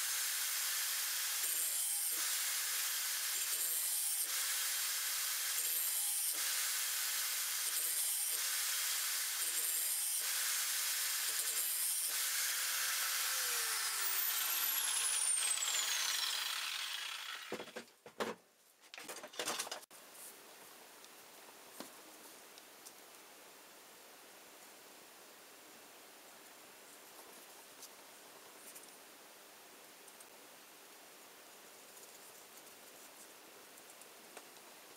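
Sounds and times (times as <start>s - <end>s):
grinder disc grinding steel: 11.2s - 17.8s.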